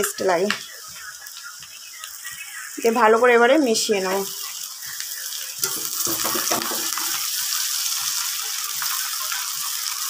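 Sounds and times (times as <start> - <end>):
noodles sizzling in a pan: 0.0 - 10.0
spatula knocking and scraping pan: 5.6 - 7.2.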